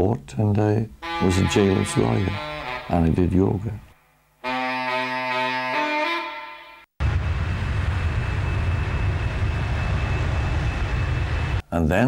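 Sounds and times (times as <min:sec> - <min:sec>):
held music chord: 0:01.0 - 0:03.8, 0:04.4 - 0:06.9.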